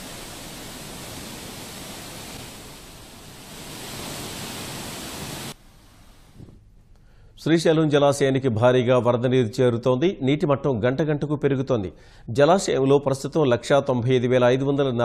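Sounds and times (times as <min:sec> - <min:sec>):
floodwater rushing: 0:00.0 - 0:05.6
faint hiss: 0:00.0 - 0:07.5.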